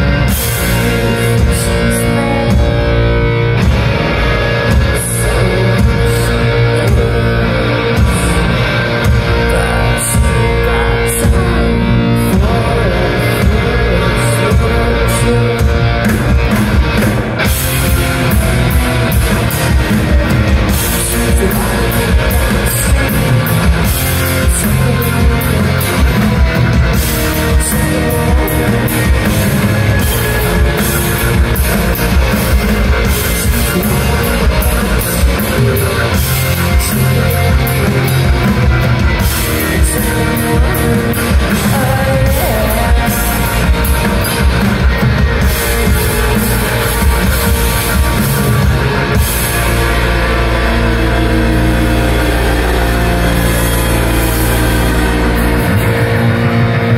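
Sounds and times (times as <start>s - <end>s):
bass guitar: 0.0s - 56.9s
distorted electric guitar: 0.0s - 56.9s
drum kit: 0.0s - 56.9s.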